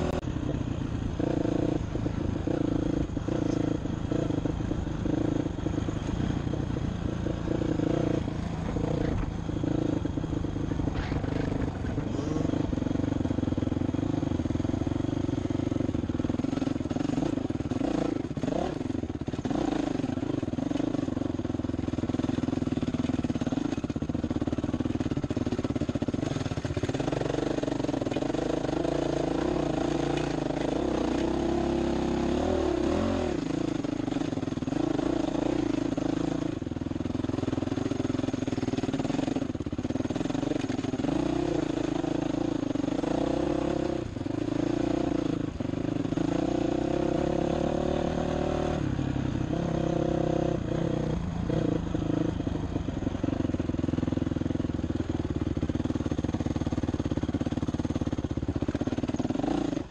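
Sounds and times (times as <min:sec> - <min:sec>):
dirt bike engine revving: 0:00.0 - 0:52.4, 0:56.1 - 0:59.9.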